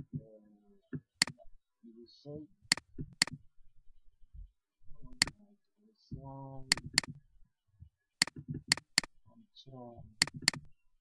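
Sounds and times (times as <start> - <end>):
person speaking quietly: 0.0 - 0.8, 1.8 - 2.5, 5.0 - 6.8, 9.3 - 10.2
computer mouse clicking: 6.7 - 7.2, 8.2 - 9.1, 10.2 - 10.7.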